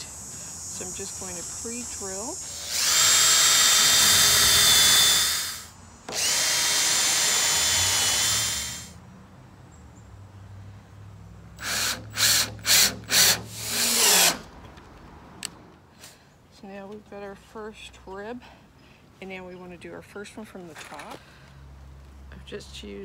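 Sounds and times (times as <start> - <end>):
cordless drill drilling wood: 0.7 - 9.0, 11.6 - 14.5
drill driving screw in bursts: 1.0 - 8.9, 11.6 - 14.5.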